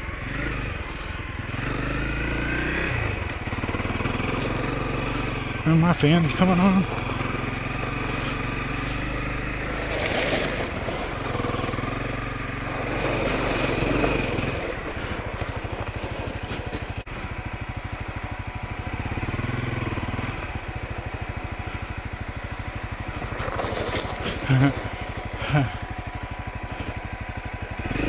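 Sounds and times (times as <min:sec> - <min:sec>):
motorcycle engine running: 0:00.0 - 0:28.0
tyres on gravel: 0:03.2 - 0:28.0.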